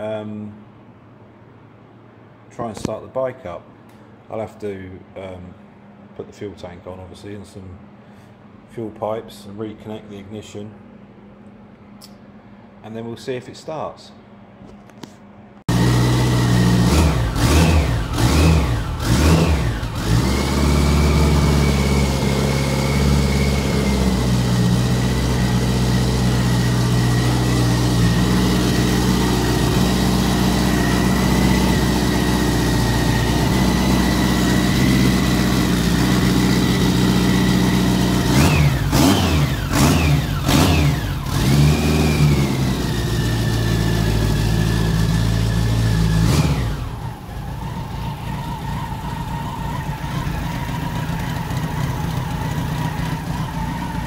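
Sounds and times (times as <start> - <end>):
motorcycle engine revving and idling: 15.7 - 54.0.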